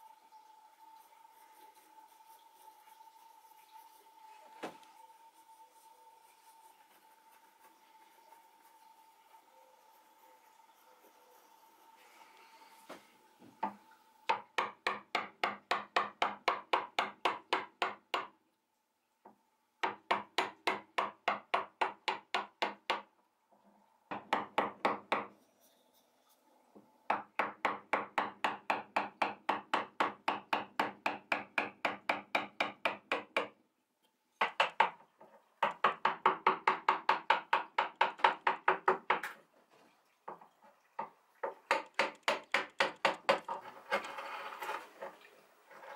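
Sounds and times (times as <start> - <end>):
wooden mallet striking gouge handle: 14.3 - 18.3, 41.7 - 43.5.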